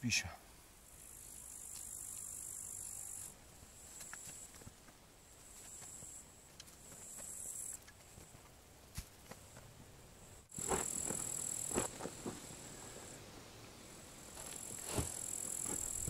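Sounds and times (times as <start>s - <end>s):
insects trilling: 0.9s - 8.0s, 10.3s - 16.0s
shovel chopping into soil: 14.4s - 16.0s.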